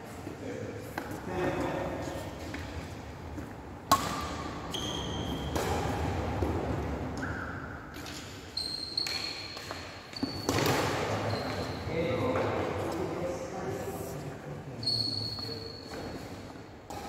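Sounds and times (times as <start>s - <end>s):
racket hitting shuttlecock: 3.4s - 11.3s
shoes squeaking on wooden floor: 8.0s - 12.5s, 14.8s - 16.4s.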